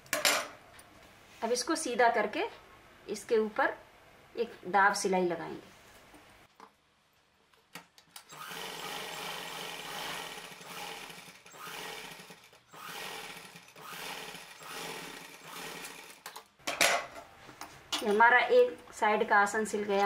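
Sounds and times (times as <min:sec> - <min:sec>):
sewing machine stitching: 0:08.3 - 0:16.3.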